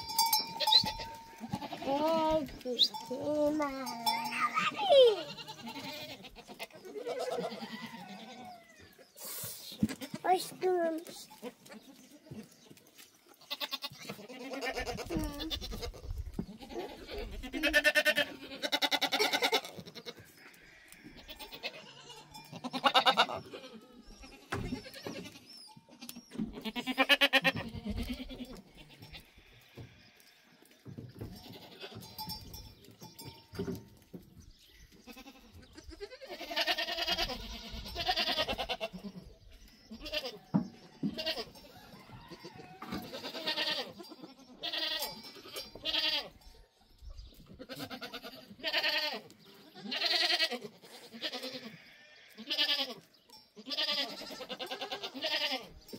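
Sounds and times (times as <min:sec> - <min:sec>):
goats bleating: 0:00.0 - 0:08.9, 0:13.4 - 0:30.4, 0:31.2 - 0:32.3, 0:35.0 - 0:39.3, 0:39.9 - 0:46.4, 0:47.5 - 0:55.8.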